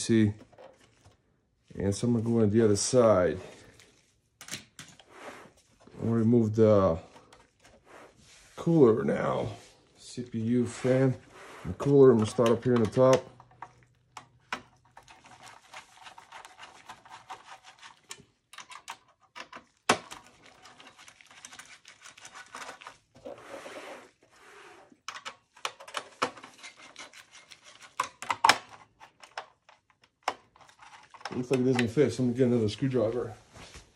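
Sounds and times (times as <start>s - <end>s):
screwdriver scraping and clicking on screws: 11.7s - 23.9s, 24.7s - 32.1s.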